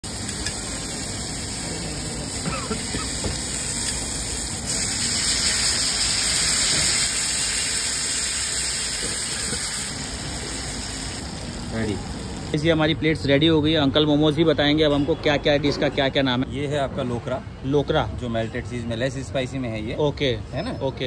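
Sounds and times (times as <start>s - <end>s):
food sizzling on hot plate: 0.0s - 12.6s.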